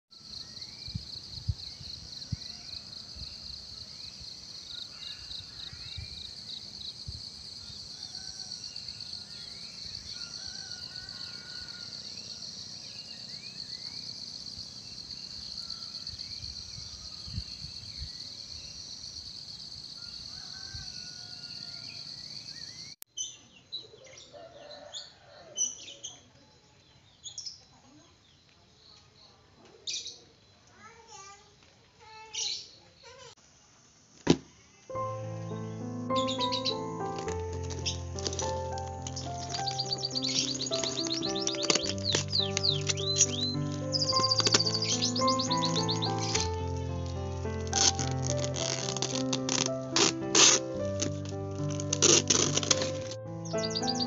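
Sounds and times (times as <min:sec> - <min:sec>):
pulsing insect chorus: 0:00.2 - 0:22.9, 0:35.2 - 0:50.6
birds chirping and calling: 0:35.7 - 0:47.1, 0:53.4 - 0:54.0.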